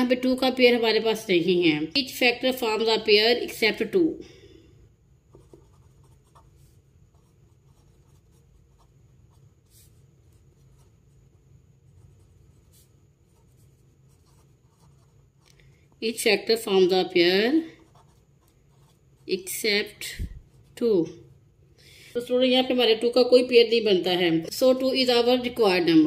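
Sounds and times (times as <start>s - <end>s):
low steady hum: 0.0s - 26.0s
pen scratching on paper: 5.3s - 15.5s, 17.5s - 19.6s.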